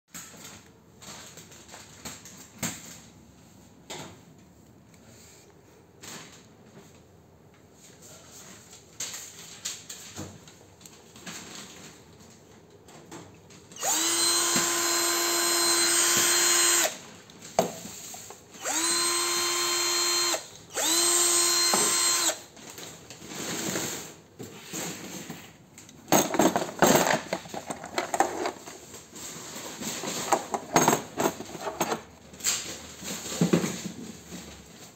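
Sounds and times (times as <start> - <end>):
cordless drill whining: 13.8 - 17.0, 18.6 - 22.5
clicks and knocks in plastic case: 26.0 - 28.7.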